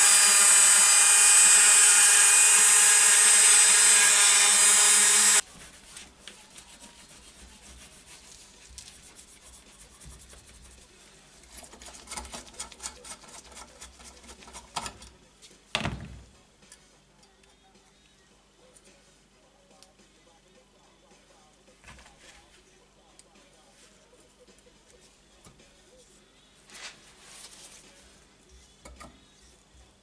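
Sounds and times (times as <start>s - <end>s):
rotary tool whining on metal: 0.0s - 5.4s.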